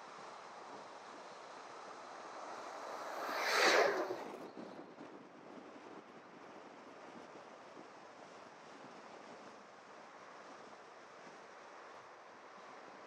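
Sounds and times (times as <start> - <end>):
car tyre and road noise: 0.0 - 4.9
wind noise on microphone: 0.0 - 13.0.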